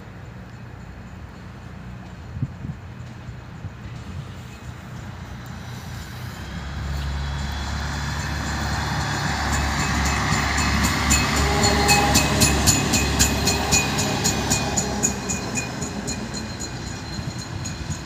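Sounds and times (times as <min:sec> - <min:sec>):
railbus engine drone: 0:00.0 - 0:18.0
wheels clicking over rail joints: 0:07.0 - 0:18.0.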